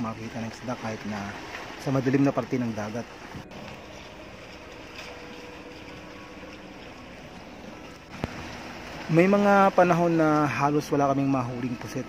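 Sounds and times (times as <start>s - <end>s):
boat motor humming: 0.0s - 12.0s
water noise: 0.0s - 12.0s
wind: 0.0s - 12.0s.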